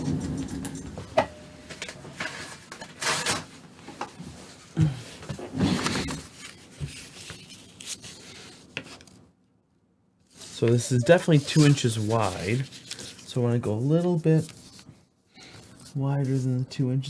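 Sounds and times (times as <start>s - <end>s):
paper rustling: 4.4s - 9.2s, 10.2s - 16.6s.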